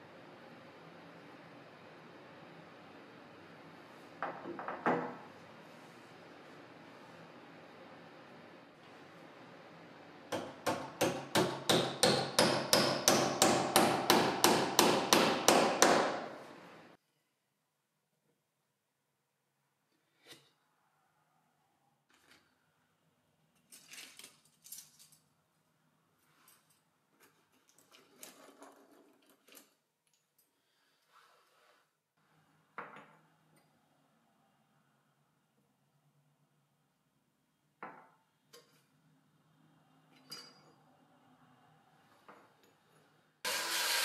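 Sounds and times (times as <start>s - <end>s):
hammer striking iron hinge: 10.4s - 16.3s
soft rustle: 30.8s - 32.0s.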